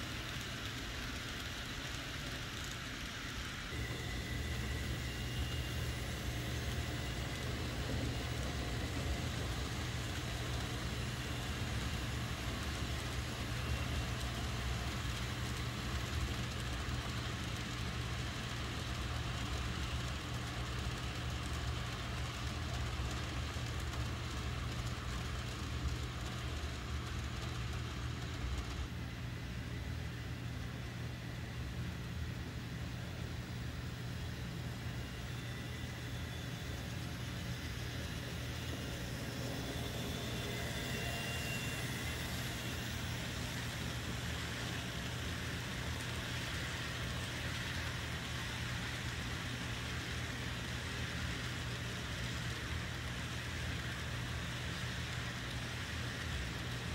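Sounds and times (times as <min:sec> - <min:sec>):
wheels rolling on track: 0:00.0 - 0:29.2, 0:34.7 - 0:56.9
faint high whine: 0:00.0 - 0:56.9
model train motors whirring: 0:00.0 - 0:56.9
low hum: 0:32.4 - 0:48.0.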